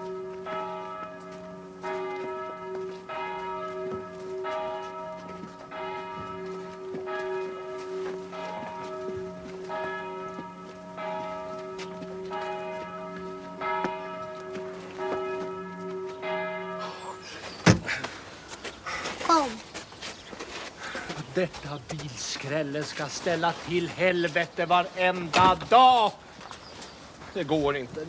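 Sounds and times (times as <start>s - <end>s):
church bells ringing: 0.0s - 17.6s.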